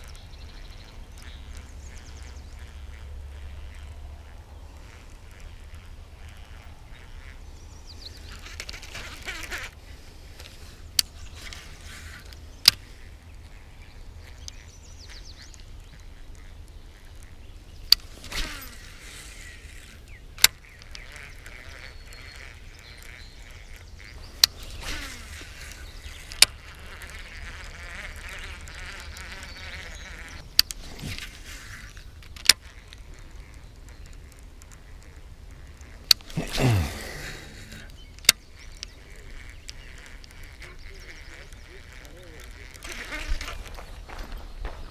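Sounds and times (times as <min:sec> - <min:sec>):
fishing reel whirring: 0:18.0 - 0:22.6.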